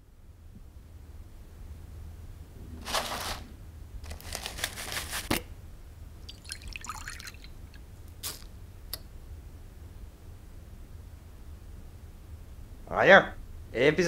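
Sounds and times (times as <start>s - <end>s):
milk pouring and splashing: 6.2s - 8.4s
cereal pouring into a mug: 6.3s - 7.5s.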